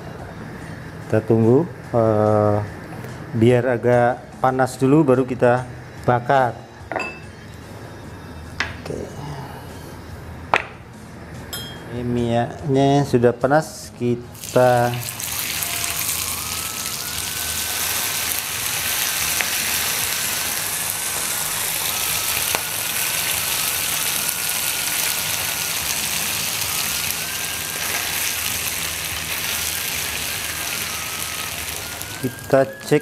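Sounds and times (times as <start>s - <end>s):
meat sizzling in oil: 14.3s - 32.8s
faint wavering whine: 14.9s - 33.0s.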